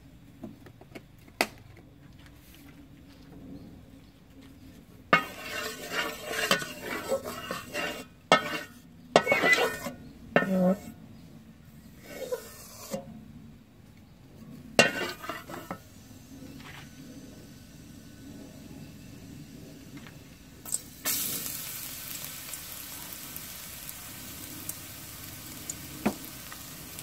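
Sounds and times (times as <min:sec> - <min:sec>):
wooden spatula scraping a metal wok: 0:05.1 - 0:11.0, 0:11.8 - 0:13.1, 0:14.8 - 0:15.9.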